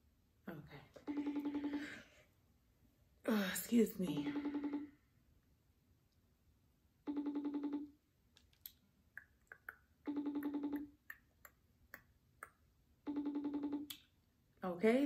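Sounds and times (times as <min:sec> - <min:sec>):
phone call ringing tone: 0:01.0 - 0:02.2, 0:04.1 - 0:05.2, 0:07.0 - 0:08.0, 0:10.1 - 0:11.0, 0:13.0 - 0:13.9.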